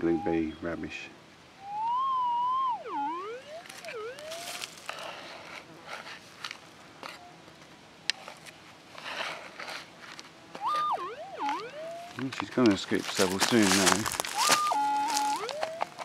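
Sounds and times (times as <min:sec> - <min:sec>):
metal detector tone swooping: 0:01.6 - 0:04.7, 0:10.6 - 0:12.2, 0:13.5 - 0:16.0
dirt rattling in plastic scoop: 0:12.2 - 0:16.0.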